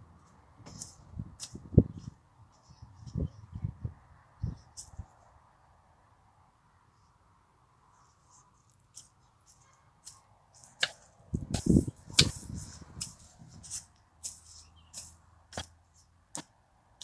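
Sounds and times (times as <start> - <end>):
hoe chopping into soil: 10.0 - 16.5.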